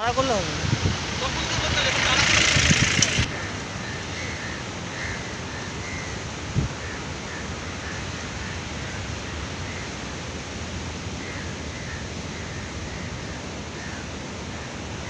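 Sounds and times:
sea surf breaking on rocks: 0:00.0 - 0:11.7
strong wind: 0:00.0 - 0:15.0.

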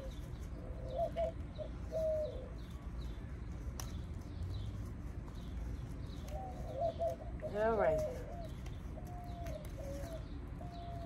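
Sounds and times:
low bird cooing: 0:00.0 - 0:03.3, 0:06.1 - 0:11.0
small bird chirping: 0:00.0 - 0:11.0.

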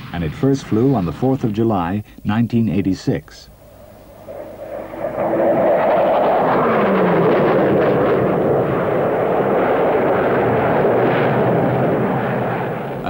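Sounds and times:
jet flying past overhead: 0:03.5 - 0:13.0.

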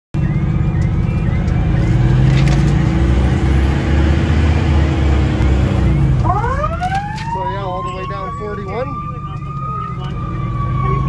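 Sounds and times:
diesel engine drone: 0:00.2 - 0:11.0.

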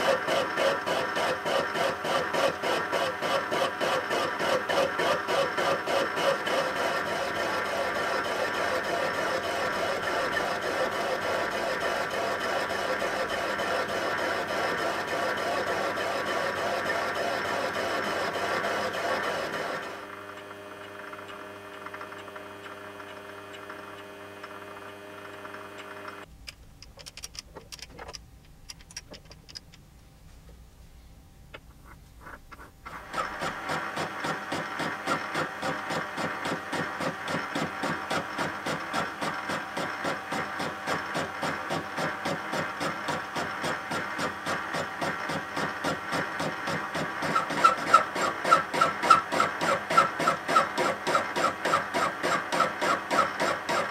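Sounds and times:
scattered clicks: 0:25.3 - 0:29.8.

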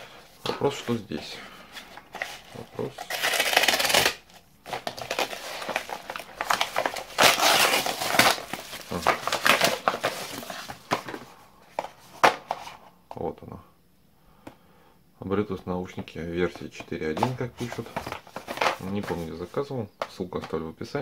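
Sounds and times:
mailer crinkling and rustling: 0:00.0 - 0:12.6, 0:17.1 - 0:19.6.

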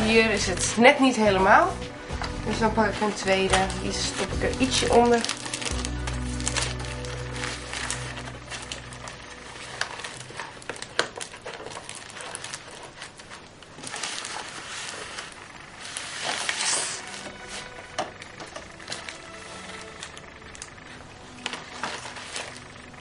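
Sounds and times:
leaves rustling and crackling: 0:00.0 - 0:23.0.

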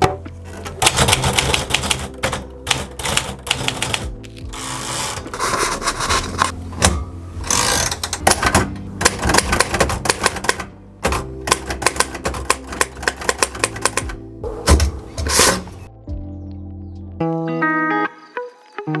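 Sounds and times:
typewriter carriage return: 0:00.4 - 0:15.8
typewriter keys clacking: 0:00.8 - 0:04.2, 0:07.7 - 0:14.2.

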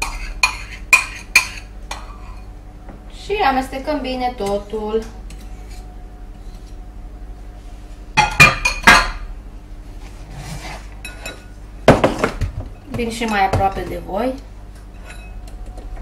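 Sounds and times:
dishes and utensils clinking: 0:08.2 - 0:09.2, 0:11.0 - 0:14.0, 0:14.9 - 0:15.4
dishes clattering: 0:08.2 - 0:09.2.

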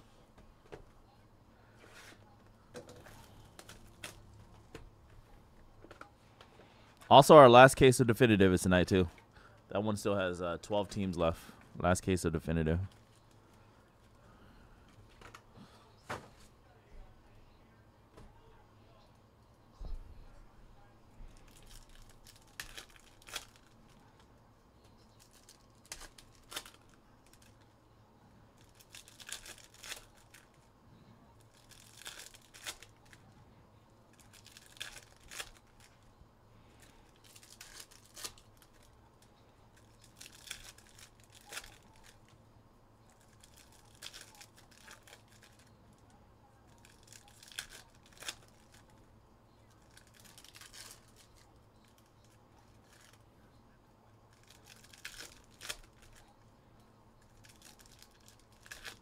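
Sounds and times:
plastic packaging crinkling and tearing: 0:21.4 - 0:24.2, 0:25.1 - 0:27.6, 0:28.6 - 0:30.7, 0:31.4 - 0:33.3, 0:34.1 - 0:36.0, 0:36.8 - 0:42.4, 0:43.0 - 0:49.0, 0:49.7 - 0:53.2, 0:54.3 - 0:56.4, 0:57.2 - 0:59.0.

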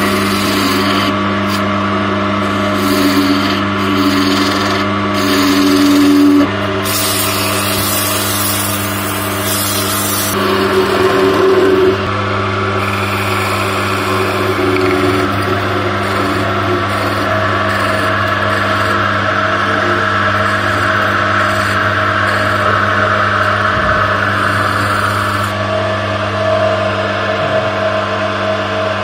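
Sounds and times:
turning tool cutting wood hiss: 0:00.0 - 0:01.7, 0:02.4 - 0:12.0, 0:12.8 - 0:19.0, 0:24.2 - 0:25.6
wood lathe motor hum: 0:00.0 - 0:29.0.

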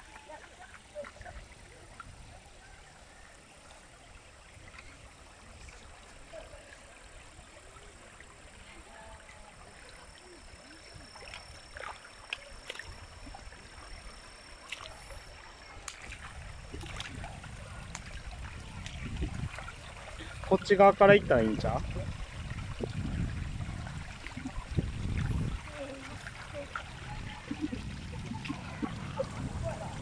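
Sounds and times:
water rushing over rocks: 0:14.5 - 0:30.0.

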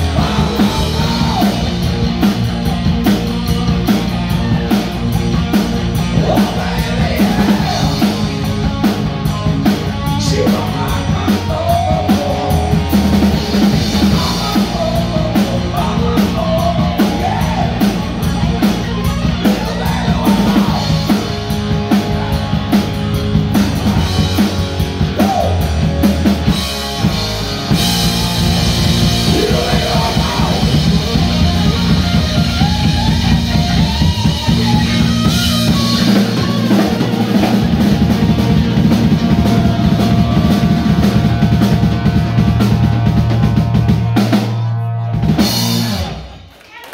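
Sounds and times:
bass guitar: 0:00.0 - 0:46.6
drum kit: 0:00.0 - 0:46.6
distorted electric guitar solo: 0:25.0 - 0:46.3.

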